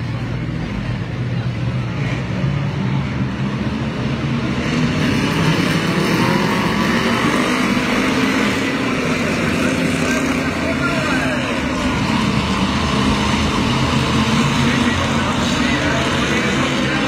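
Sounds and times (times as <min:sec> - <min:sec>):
race car engines at speed: 0:00.0 - 0:17.0.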